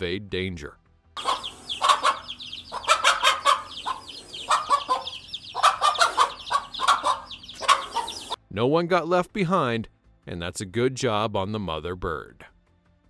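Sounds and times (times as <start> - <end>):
chicks peeping: 1.2 - 8.4
hen clucking: 1.2 - 8.4.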